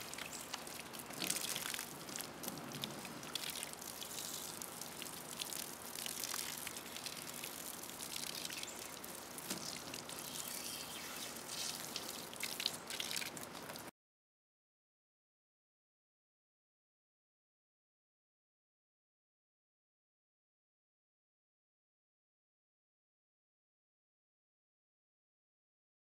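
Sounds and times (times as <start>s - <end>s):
garden hose spraying water: 0.0s - 13.9s
water drips and splashes: 0.0s - 13.9s.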